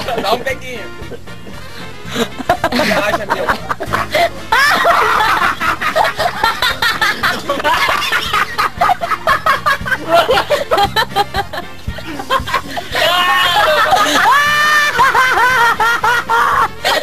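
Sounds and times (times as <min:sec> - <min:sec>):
people laughing and snickering: 0:00.0 - 0:17.0.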